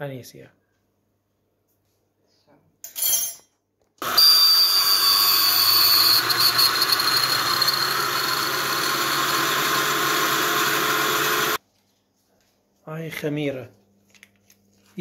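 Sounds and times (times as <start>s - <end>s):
blender motor whining: 4.0s - 11.6s.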